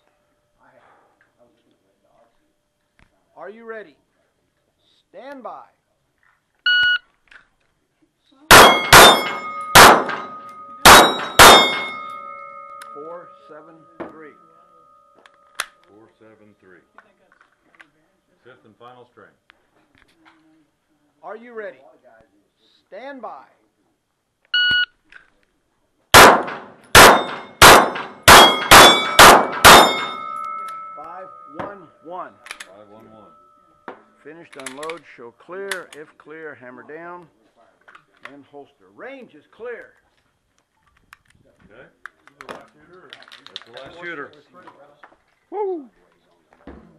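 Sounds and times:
shot timer beep: 0:06.7 - 0:07.0, 0:24.6 - 0:24.9
pistol shots: 0:08.5 - 0:13.0, 0:26.2 - 0:31.0
steel targets ringing: 0:08.5 - 0:15.8, 0:26.2 - 0:33.9.

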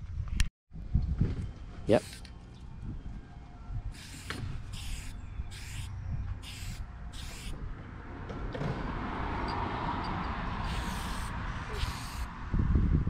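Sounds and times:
spray paint can hissing: 0:04.0 - 0:07.6, 0:10.6 - 0:12.3.

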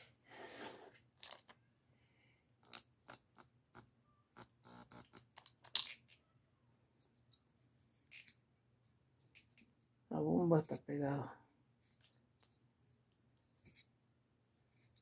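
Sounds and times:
small plastic clicks and scrapes: 0:01.2 - 0:01.6, 0:02.6 - 0:06.2.

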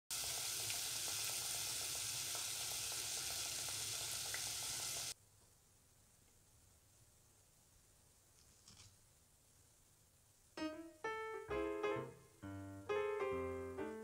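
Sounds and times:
doughnuts sizzling in oil: 0:00.1 - 0:05.2.

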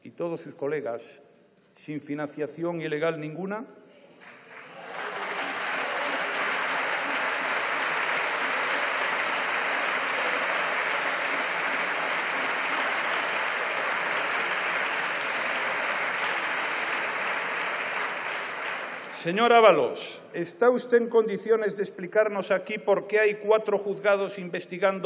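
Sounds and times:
crowd applauding: 0:04.2 - 0:19.7.

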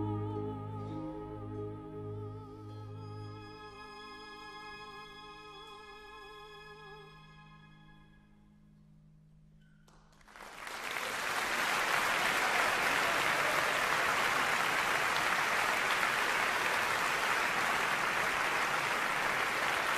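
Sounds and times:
audience applause: 0:10.1 - 0:19.9.

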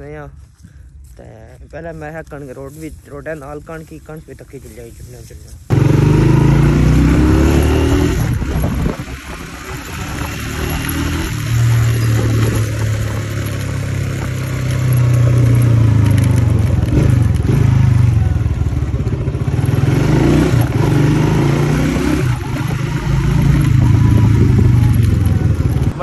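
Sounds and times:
motorcycle engine drone: 0:05.7 - 0:26.0.

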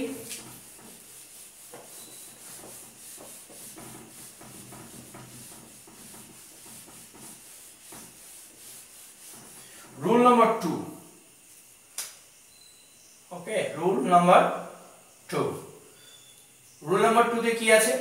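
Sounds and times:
eraser wiping whiteboard: 0:00.0 - 0:10.4.

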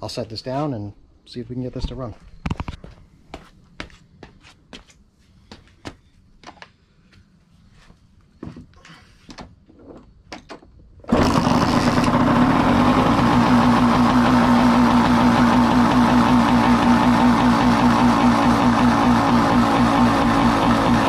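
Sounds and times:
two-stroke engine idling: 0:11.1 - 0:21.0.

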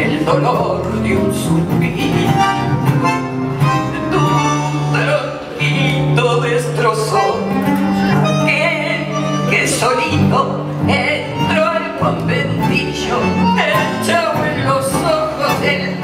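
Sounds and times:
guitar accompaniment: 0:00.0 - 0:16.0
woman singing into microphone: 0:08.2 - 0:16.0.

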